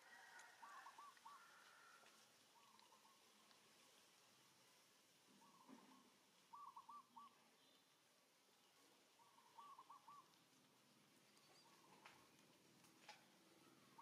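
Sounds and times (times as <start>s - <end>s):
bird calling: 0.0s - 3.6s, 5.4s - 7.9s, 9.1s - 10.4s, 11.4s - 12.4s.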